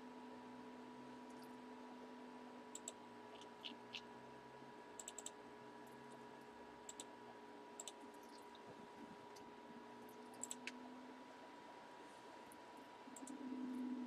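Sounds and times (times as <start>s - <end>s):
faint steady hum: 0.0s - 14.0s
faint computer clicking: 2.7s - 4.1s, 4.9s - 6.2s, 6.8s - 7.2s, 7.8s - 8.7s, 9.3s - 10.9s, 12.5s - 13.9s.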